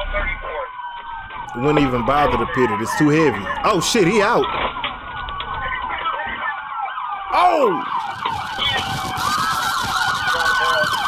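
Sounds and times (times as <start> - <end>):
police sirens wailing: 0.0 - 11.0.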